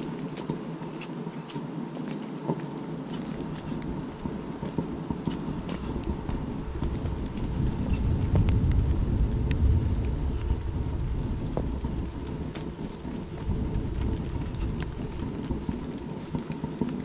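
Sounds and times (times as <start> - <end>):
rain on foliage: 0.0 - 17.0
deep low rumble: 5.1 - 16.5.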